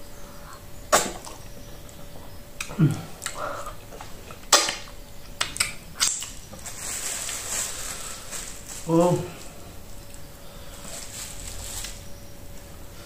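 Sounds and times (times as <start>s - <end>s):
wet mouth smacks while eating: 2.6s - 3.4s, 4.0s - 6.4s.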